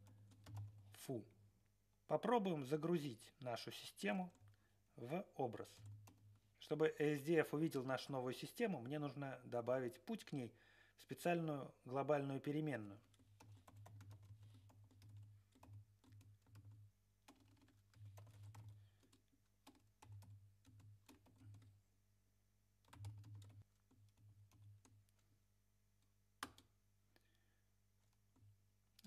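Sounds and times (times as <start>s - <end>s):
typing on computer keyboard: 0.0s - 0.9s, 5.6s - 6.4s, 13.0s - 21.8s, 22.8s - 25.3s, 26.4s - 26.7s.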